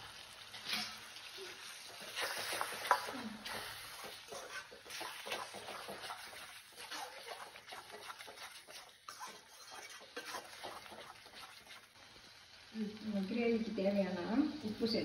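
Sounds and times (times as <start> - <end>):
metal spatula scraping pan: 0.6 - 12.0.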